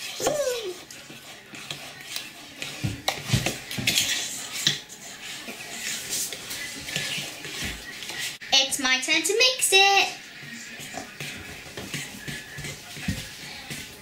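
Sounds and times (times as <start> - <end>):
fork scraping and clinking bowl: 0.0 - 8.4, 10.4 - 14.0
fork stirring batter: 0.0 - 14.0.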